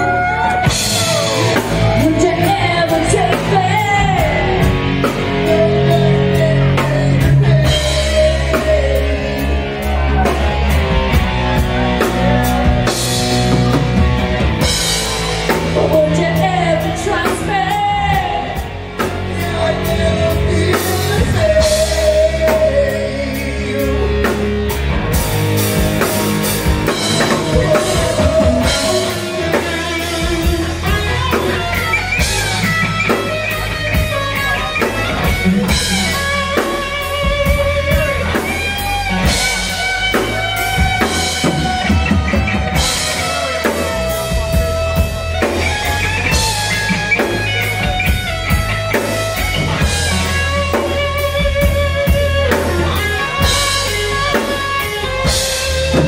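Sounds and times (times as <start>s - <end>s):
bass guitar: 0.0s - 56.0s
drum kit: 0.0s - 56.0s
electric guitar: 0.0s - 56.0s
man and woman singing: 1.9s - 10.2s, 15.8s - 24.3s, 27.1s - 31.1s.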